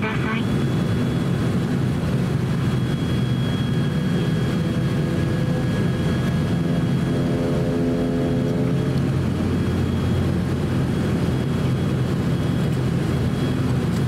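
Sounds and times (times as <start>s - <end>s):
faint high whine: 0.0s - 7.2s
turboprop engines droning: 0.0s - 14.0s.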